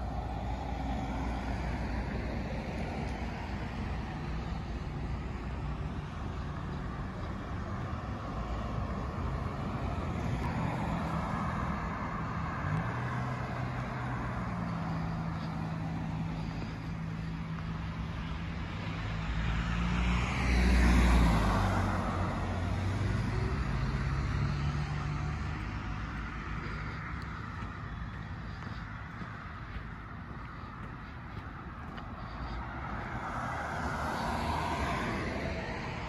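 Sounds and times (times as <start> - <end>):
cars driving past: 0.0 - 36.0
car passing close by: 19.0 - 27.7, 32.2 - 36.0.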